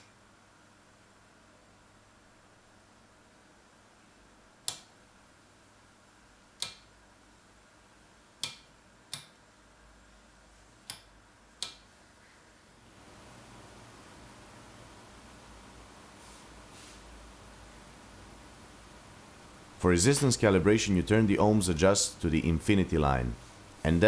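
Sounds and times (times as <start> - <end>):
rotary switch clicking: 4.6 - 4.9, 6.6 - 6.9, 8.4 - 9.4.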